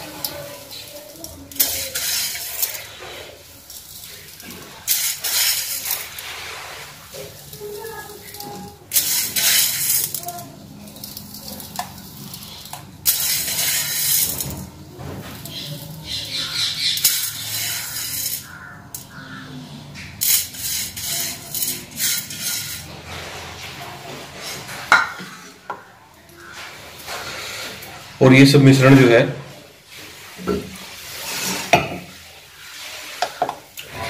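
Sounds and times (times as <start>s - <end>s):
fingers scraping flour in steel bowl: 0.0s - 25.6s.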